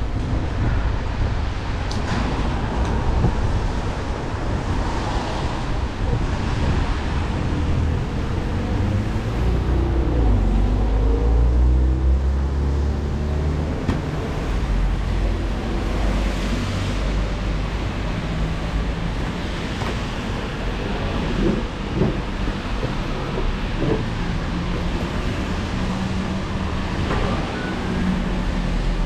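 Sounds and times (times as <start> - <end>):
rain: 0.0 - 29.0
tyres hissing on wet road: 2.4 - 9.7.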